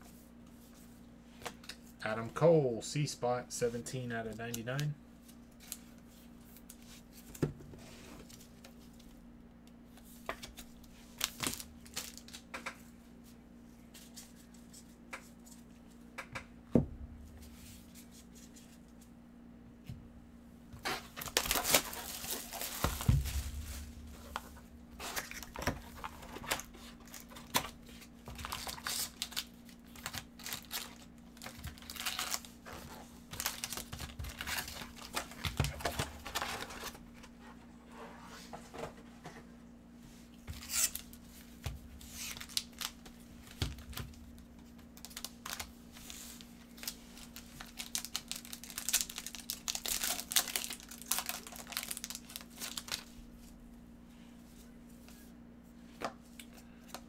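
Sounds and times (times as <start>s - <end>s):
packaging crinkling and tearing: 10.4s - 12.5s, 20.8s - 37.0s, 42.0s - 44.2s, 45.0s - 53.1s.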